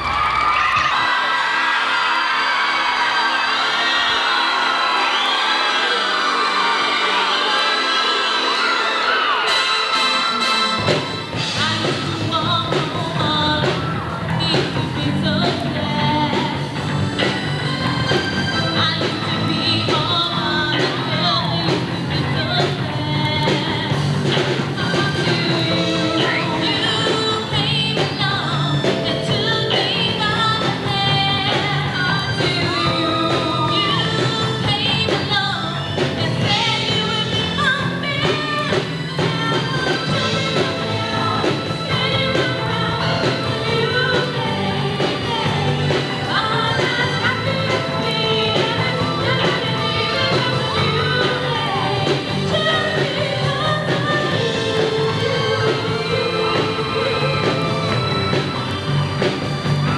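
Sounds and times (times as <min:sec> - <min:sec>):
drums: 0:00.0 - 0:59.9
live rock band playing: 0:00.2 - 0:59.9
person singing into a microphone: 0:11.4 - 0:16.7, 0:18.4 - 0:58.4.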